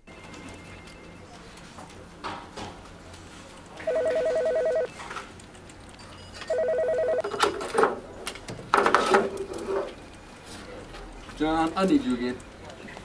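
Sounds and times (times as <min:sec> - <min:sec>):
telephone electronic ring: 0:03.8 - 0:04.9, 0:06.4 - 0:07.5.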